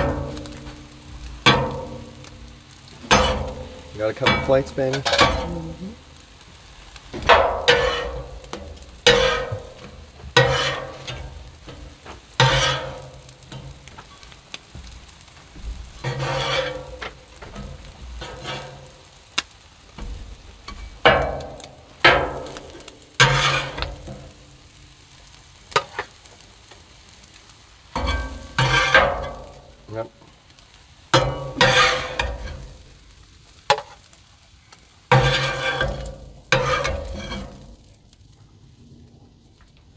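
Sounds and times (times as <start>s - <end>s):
food sizzling: 0.0s - 39.9s
metal spatulas scraping griddle: 3.0s - 5.8s, 7.2s - 14.3s, 16.0s - 19.0s, 20.7s - 24.3s, 28.0s - 29.7s, 31.2s - 32.9s, 35.1s - 37.8s.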